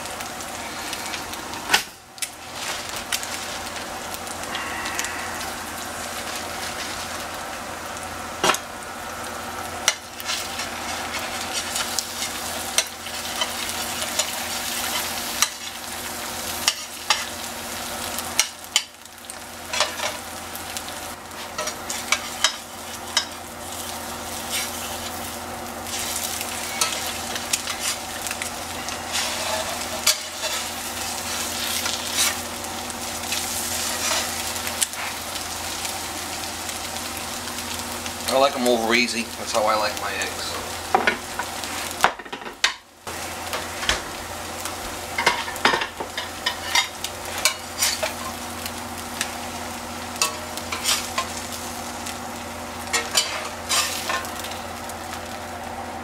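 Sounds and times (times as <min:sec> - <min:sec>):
eggs sizzling in a pan: 0:00.0 - 0:56.0
spatula scraping a pan: 0:25.9 - 0:28.1, 0:28.8 - 0:32.4, 0:33.3 - 0:35.2, 0:46.2 - 0:48.3, 0:50.2 - 0:51.3, 0:52.9 - 0:54.2.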